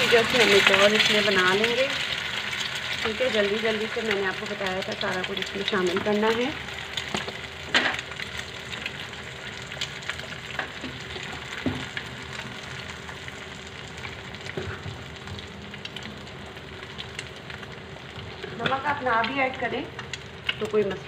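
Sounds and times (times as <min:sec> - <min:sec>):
egg sizzling in oil: 0:00.0 - 0:21.0.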